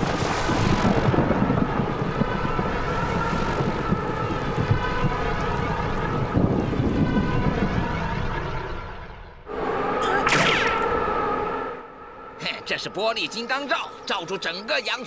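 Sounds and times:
cartoon strong wind blowing: 0:00.0 - 0:08.6, 0:09.5 - 0:12.7.

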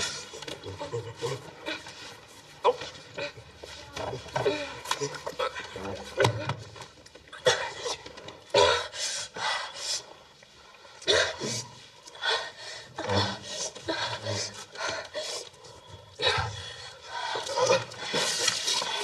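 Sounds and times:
woman panting and moaning: 0:12.2 - 0:19.0.

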